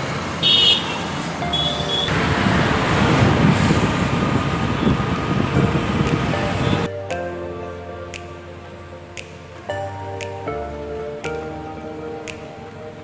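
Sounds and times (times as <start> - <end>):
highway road and wind noise: 0.0 - 7.0
vehicle horn beeps: 0.4 - 2.1.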